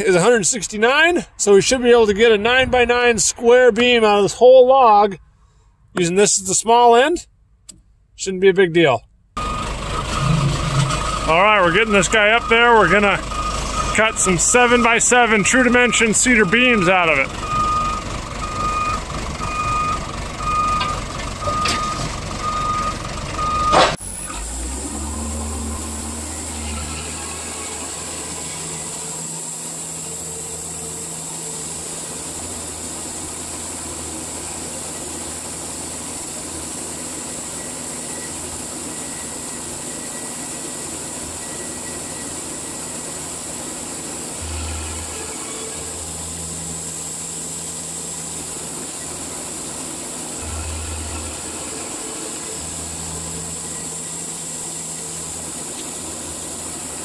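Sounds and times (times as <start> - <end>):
deep rumble: 1.4 - 4.4
tractor engine running: 9.1 - 57.0
backup alarm beeping: 9.4 - 24.3
sawmill machinery humming: 9.4 - 57.0.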